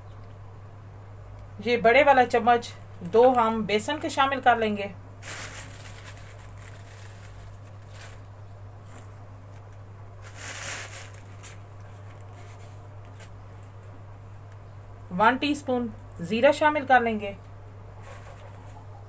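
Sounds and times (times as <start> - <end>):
steady low hum: 0.0 - 19.0
powder rustling into bowl: 5.2 - 13.4.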